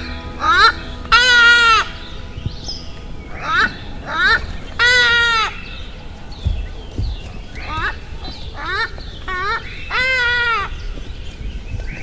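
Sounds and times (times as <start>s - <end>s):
peacock wailing call: 0.0s - 11.0s.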